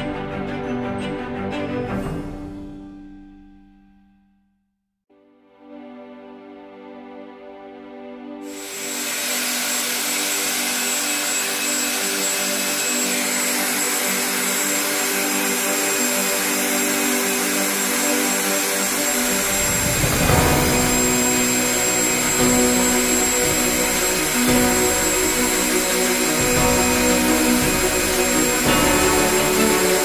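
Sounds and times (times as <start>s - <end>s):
electric meat grinder whining: 8.5s - 30.0s
low rumbling: 19.1s - 28.7s.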